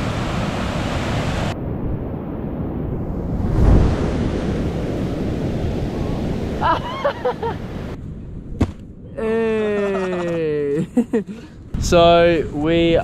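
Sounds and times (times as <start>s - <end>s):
ocean surf breaking: 0.0s - 8.0s
wind buffeting microphone: 0.0s - 13.0s.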